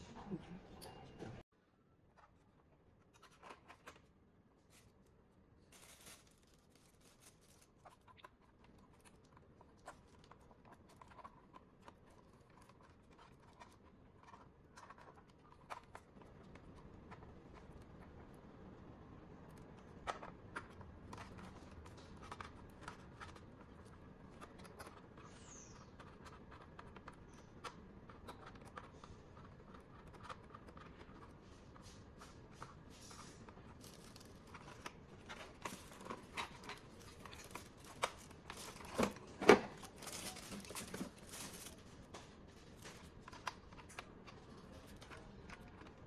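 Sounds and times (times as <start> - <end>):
packing paper rustling: 3.1 - 17.8, 28.2 - 46.0.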